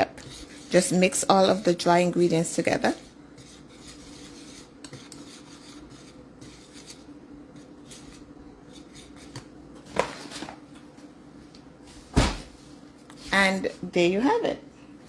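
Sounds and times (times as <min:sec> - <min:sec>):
whisk scraping in bowl: 0:00.0 - 0:09.6.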